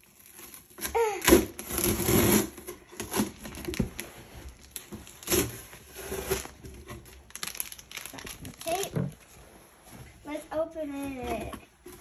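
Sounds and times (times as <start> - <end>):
packing tape ripping: 0.0 - 9.0.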